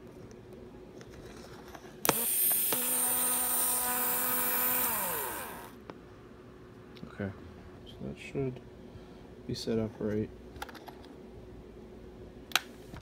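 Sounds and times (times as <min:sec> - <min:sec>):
small electric motor whining: 0:02.0 - 0:05.8.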